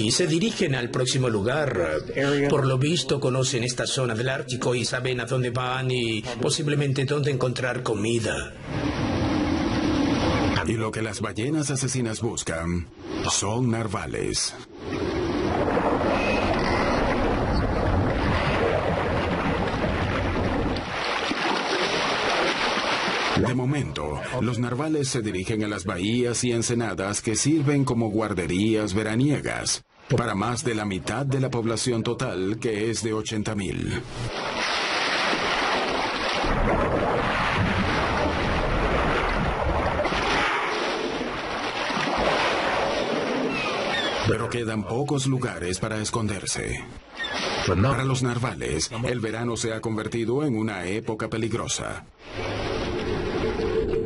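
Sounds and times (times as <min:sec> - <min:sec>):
sea water rushing: 0:08.6 - 0:10.8, 0:14.7 - 0:24.4, 0:34.1 - 0:44.6, 0:47.0 - 0:48.0, 0:52.2 - 0:54.0
wind noise: 0:14.7 - 0:21.1.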